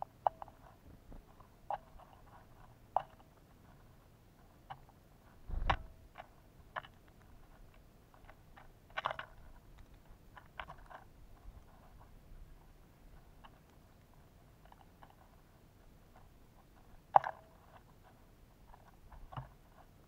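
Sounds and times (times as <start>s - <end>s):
heavy thump: 5.5s - 6.0s.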